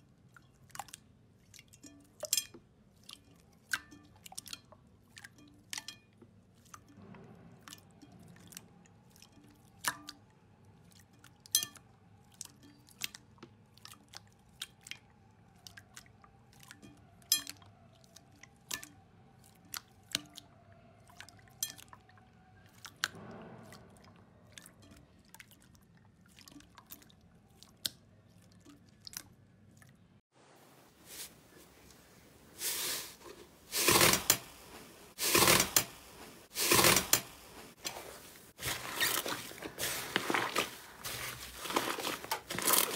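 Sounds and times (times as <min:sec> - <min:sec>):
slime squishing under palms: 0:32.6 - 0:42.9.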